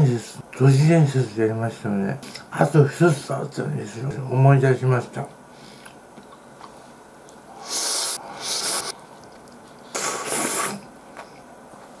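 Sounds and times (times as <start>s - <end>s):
person slurping noodles: 7.6s - 9.0s, 9.9s - 10.9s.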